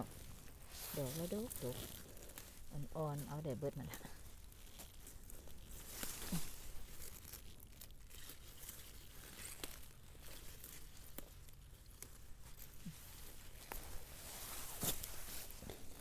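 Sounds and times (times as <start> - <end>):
stems snapping: 0.0 - 13.9
plants rustling: 0.0 - 16.0.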